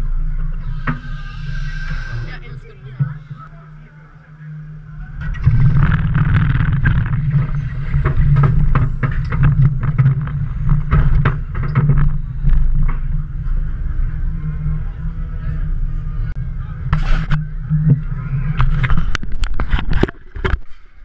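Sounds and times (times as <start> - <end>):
roller coaster wheels rumbling: 4.6 - 20.5.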